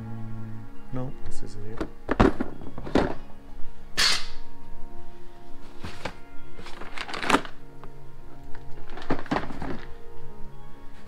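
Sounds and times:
background music: 0.0 - 11.0
plastic bins of bolts clattering: 1.8 - 3.3, 5.9 - 7.6, 8.5 - 10.0.

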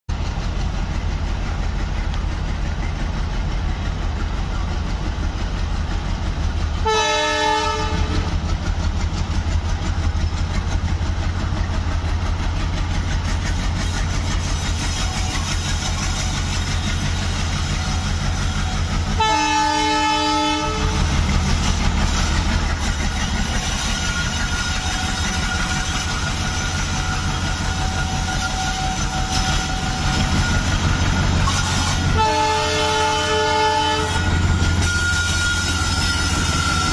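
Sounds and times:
diesel locomotive engine rumbling: 0.0 - 36.9
train horn blasts: 6.8 - 8.4, 18.4 - 21.2, 27.1 - 36.9.

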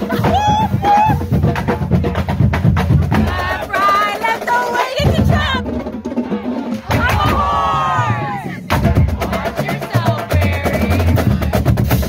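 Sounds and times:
crowd shouting: 0.0 - 1.2, 3.2 - 10.2
marching drumline playing: 0.0 - 12.0.

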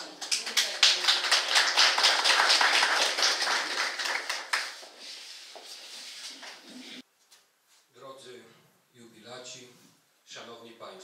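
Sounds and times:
audience applauding: 0.0 - 5.0
room noise: 0.0 - 11.0.

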